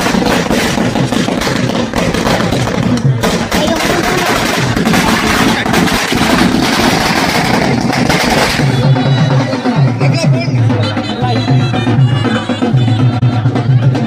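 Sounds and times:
firecrackers crackling: 0.0 - 10.2
band music: 7.3 - 14.0.

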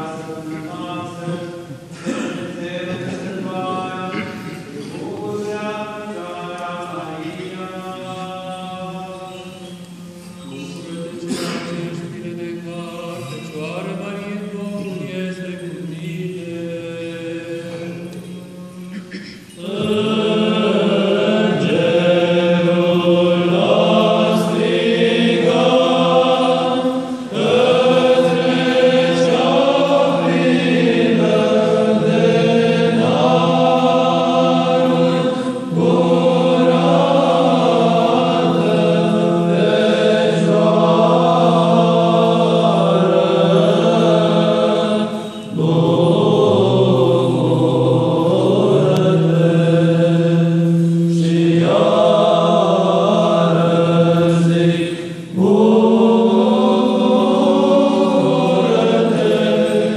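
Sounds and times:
male choir chanting: 0.0 - 59.9.

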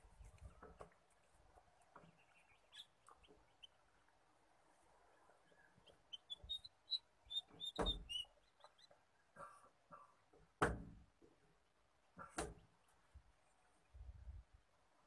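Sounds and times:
small bird chirping: 1.8 - 4.0, 5.2 - 9.0.

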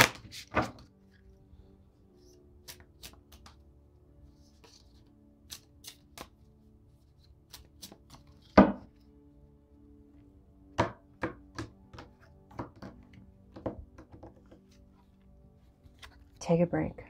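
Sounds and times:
soft background music: 0.0 - 17.0
cards knocking on marble table: 8.6 - 8.9, 10.8 - 13.0.

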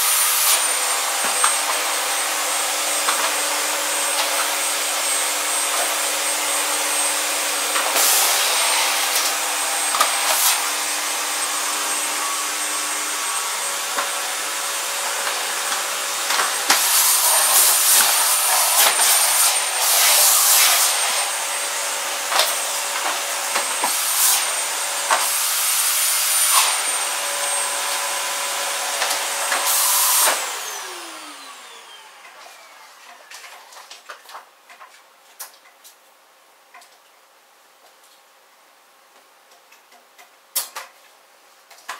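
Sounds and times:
vacuum cleaner running: 0.0 - 33.8
vacuum motor winding down: 0.4 - 33.4.

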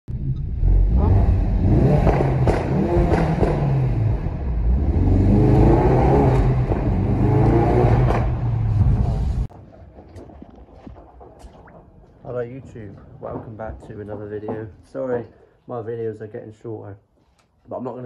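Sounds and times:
car engine accelerating hard: 0.5 - 9.5.

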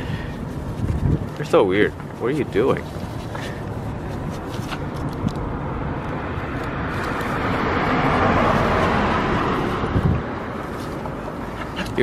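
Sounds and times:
vehicle passing: 2.5 - 12.0.

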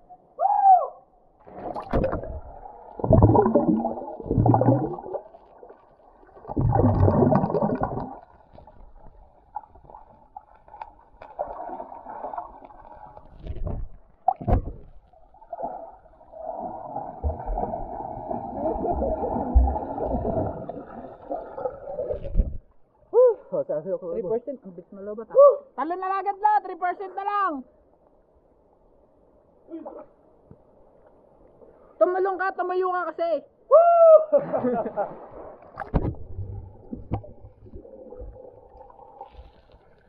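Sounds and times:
muffled river water gurgling: 1.0 - 23.2, 33.6 - 40.0.

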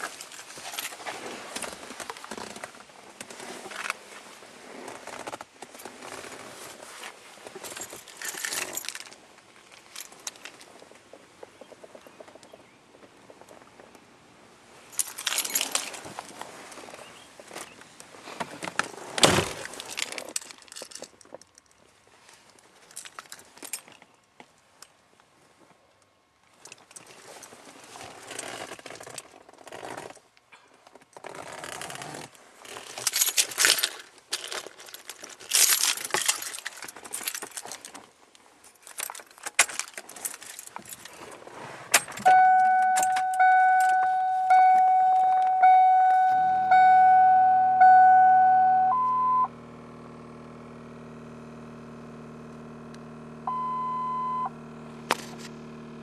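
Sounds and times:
keys jangling: 7.7 - 9.2, 15.0 - 16.0, 19.6 - 21.6, 32.8 - 37.9, 38.7 - 41.2, 42.0 - 44.0
car warning chime: 42.2 - 49.6, 53.5 - 54.6
short high beeps: 42.3 - 49.5, 53.5 - 54.5.

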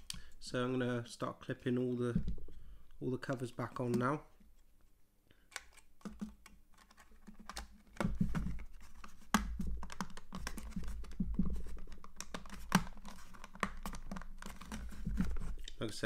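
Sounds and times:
plastic cover clicking: 5.5 - 15.8.

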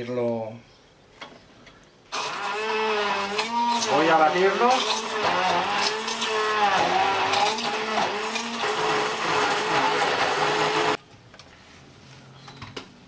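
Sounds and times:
immersion blender running: 2.2 - 11.0.

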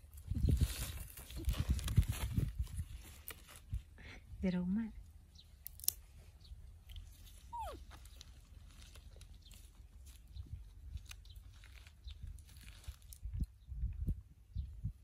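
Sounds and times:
corn husks rustling and crackling: 0.0 - 4.0, 5.5 - 13.6.

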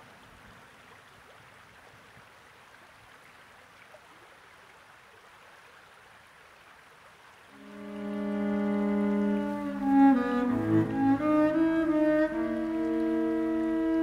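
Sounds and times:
flowing river water: 0.0 - 14.0
cello note: 7.6 - 14.0.

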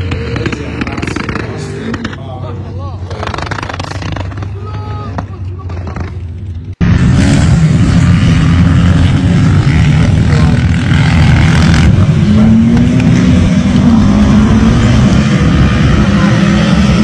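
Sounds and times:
car engine revving: 0.0 - 4.6, 5.7 - 17.0
steady engine note: 6.8 - 17.0.

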